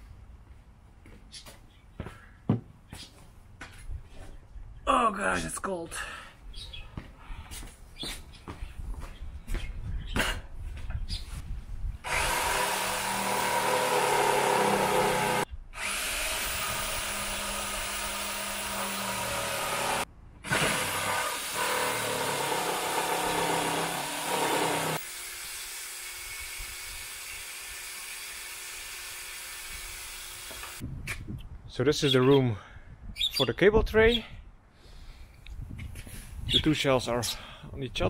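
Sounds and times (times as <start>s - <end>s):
jigsaw cutting wood: 12.0s - 30.8s.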